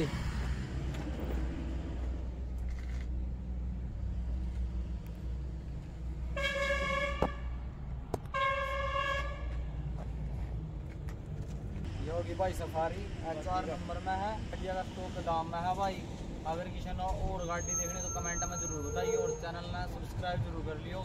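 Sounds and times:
vehicle horn blasts: 6.3s - 7.6s, 8.3s - 9.6s.

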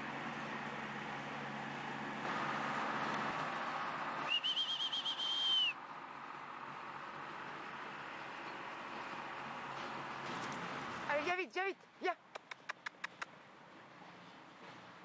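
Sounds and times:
high warbling whistle: 4.3s - 5.8s.

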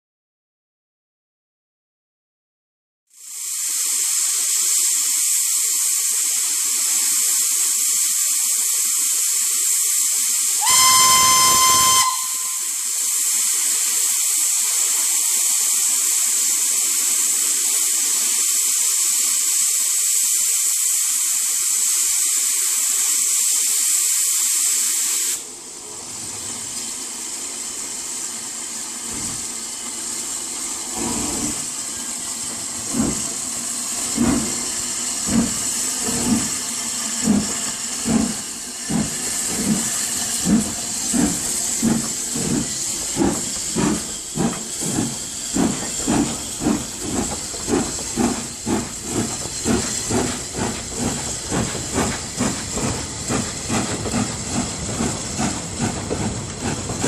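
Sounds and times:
steam safety valves hissing: 3.1s - 57.0s
steam whistle: 10.6s - 12.9s.

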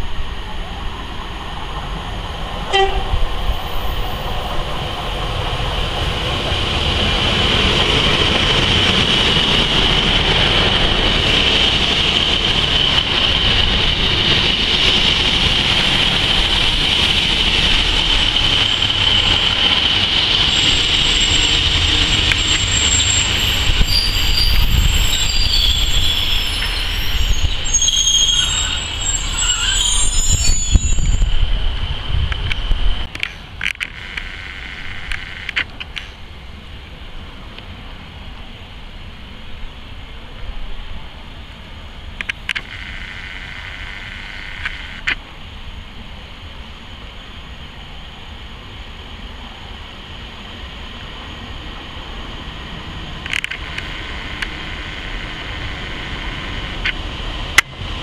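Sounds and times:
diesel train running: 0.0s - 58.0s
steady high squeal: 2.7s - 33.1s, 51.2s - 58.0s
sharp wheel squeals: 20.4s - 31.4s.

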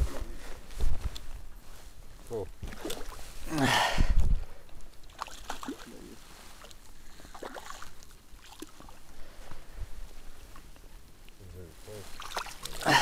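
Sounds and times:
fish splashing in water: 5.0s - 9.0s, 12.1s - 13.0s.

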